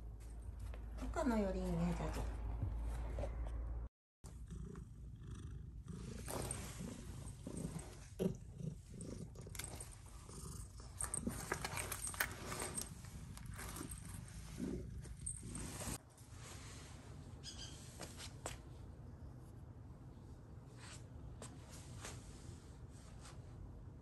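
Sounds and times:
cat purring: 0:04.3 - 0:16.0
rustling: 0:06.0 - 0:16.9.

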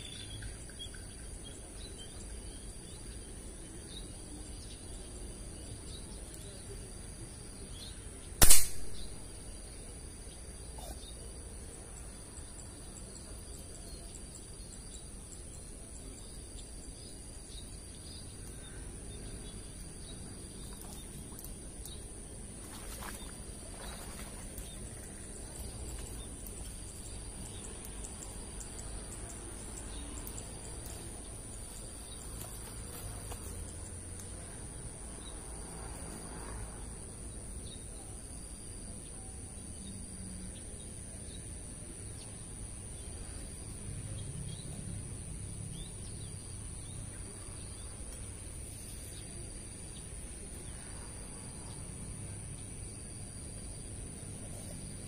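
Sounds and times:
quiet outdoor background: 0:00.0 - 0:55.0
air rifle shot: 0:08.4 - 0:09.1.

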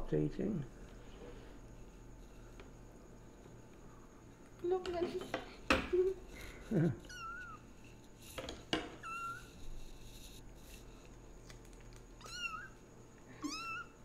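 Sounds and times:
kitten mewing: 0:12.2 - 0:12.8, 0:13.4 - 0:13.9.

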